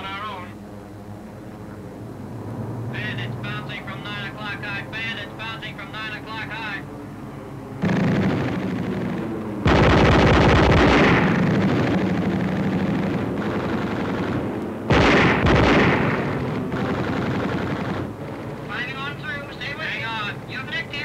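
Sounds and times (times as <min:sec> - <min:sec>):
droning aircraft engine: 0:00.0 - 0:21.0
machine-gun fire: 0:07.8 - 0:18.8.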